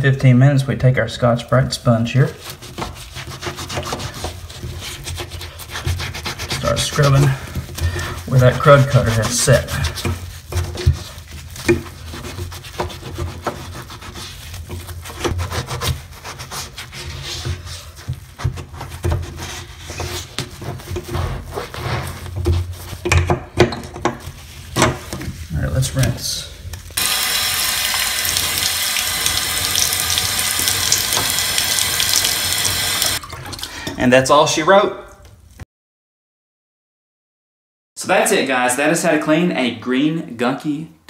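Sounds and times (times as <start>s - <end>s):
sponge scrubbing wet surface: 1.4s - 23.0s, 27.0s - 33.2s
faucet water splashing on metal: 27.0s - 33.9s.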